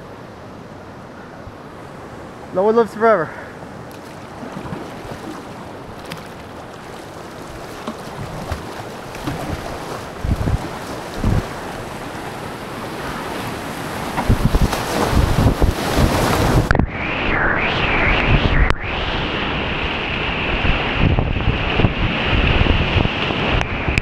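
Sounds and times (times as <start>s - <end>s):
whitewater rushing: 1.9s - 16.7s
wind buffeting microphone: 3.6s - 24.0s.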